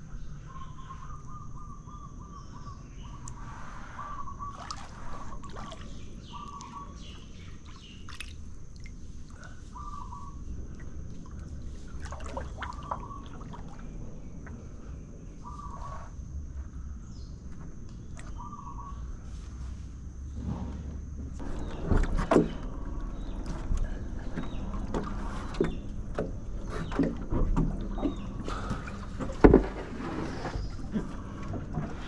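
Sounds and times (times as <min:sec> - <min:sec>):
bird calling: 0:00.1 - 0:08.3, 0:09.3 - 0:16.1, 0:18.2 - 0:19.1
water dripping and trickling: 0:04.5 - 0:09.5, 0:10.6 - 0:13.9.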